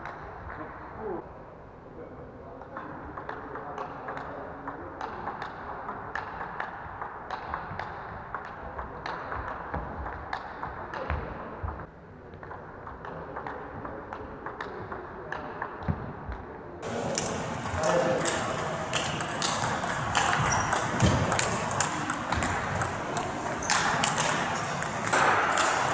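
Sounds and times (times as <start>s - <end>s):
table tennis ball clicks: 16.8s - 25.9s.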